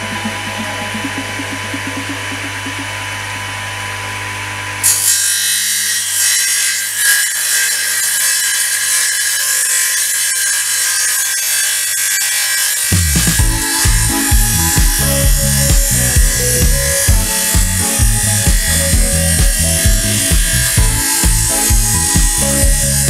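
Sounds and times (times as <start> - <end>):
table saw motor humming: 0.0 - 23.0
saw blade cutting wood: 4.8 - 23.0.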